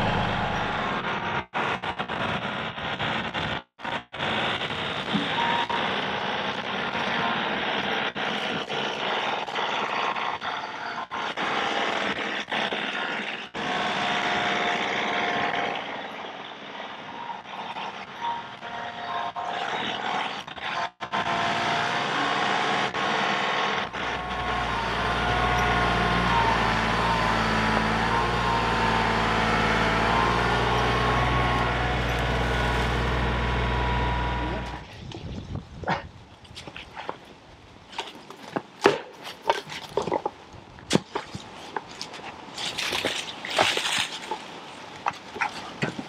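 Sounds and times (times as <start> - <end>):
high whine: 0.0 - 1.4, 23.8 - 34.9
tractor diesel engine running: 0.0 - 1.5, 21.1 - 34.9.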